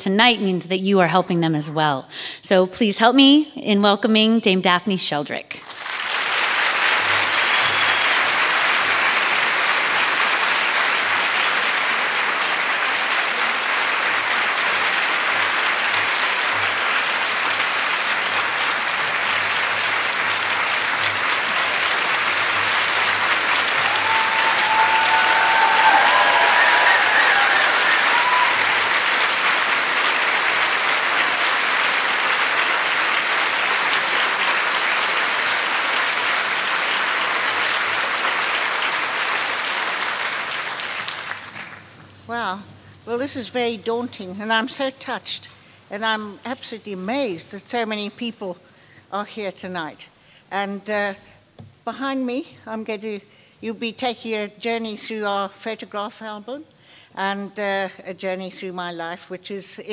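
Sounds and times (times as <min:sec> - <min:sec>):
large audience applauding: 0:05.6 - 0:42.1.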